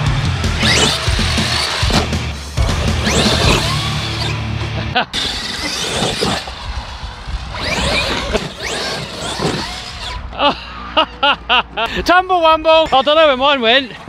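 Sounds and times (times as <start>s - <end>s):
background music: 0.0s - 5.1s
electric motors whining: 0.2s - 10.5s.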